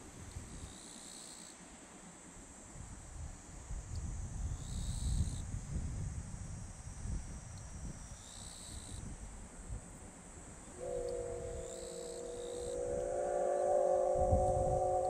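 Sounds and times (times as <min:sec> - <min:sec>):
insects shrilling: 0:10.8 - 0:15.0
low rumble: 0:10.8 - 0:15.0.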